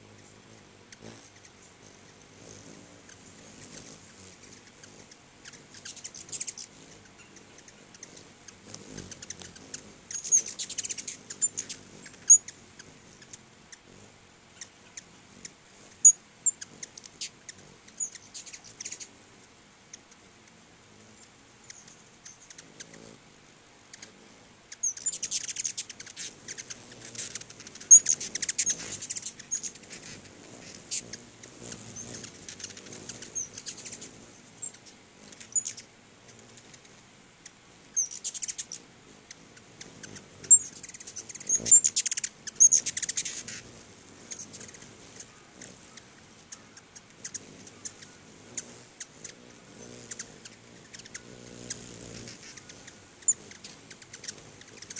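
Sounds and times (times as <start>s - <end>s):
hummingbirds chipping and twittering: 0.0s - 54.9s.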